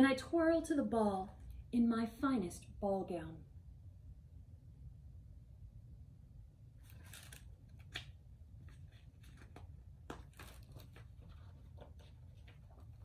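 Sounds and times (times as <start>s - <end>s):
low room hum: 0.0s - 13.0s
paper crackle: 6.8s - 13.0s
paper rustling: 6.8s - 13.0s.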